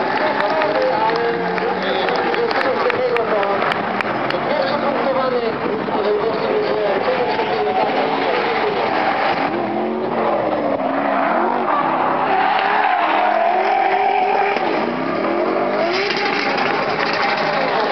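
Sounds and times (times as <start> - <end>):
car engines revving: 0.0 - 17.9
tyres squealing: 6.3 - 17.9.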